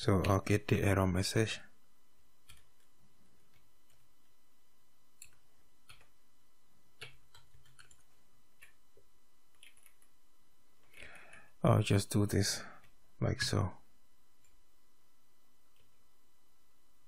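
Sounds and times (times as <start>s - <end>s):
keyboard typing clicks: 2.4s - 2.9s, 5.2s - 6.1s, 7.0s - 8.8s, 9.5s - 10.1s.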